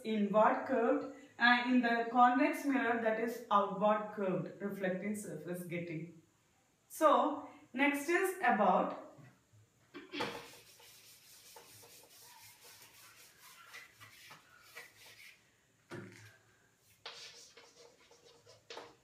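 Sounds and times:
chalk scratching on board: 10.2 - 15.4, 16.8 - 19.0
duster rubbing chalkboard: 10.2 - 15.4, 16.8 - 19.0.

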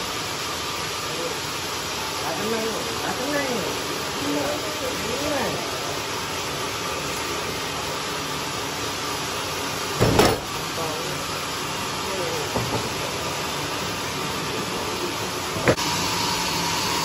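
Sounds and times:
sawmill machinery running: 0.0 - 17.0
heavy wooden thud: 10.0 - 10.5.

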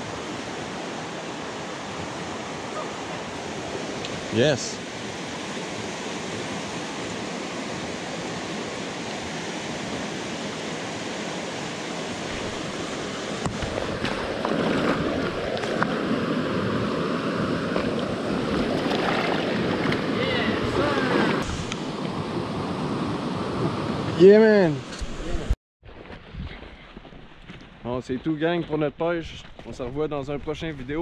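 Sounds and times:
river rushing over rocks: 0.0 - 21.6
sharp knocks and splashes: 13.3 - 16.0, 17.7 - 20.1.

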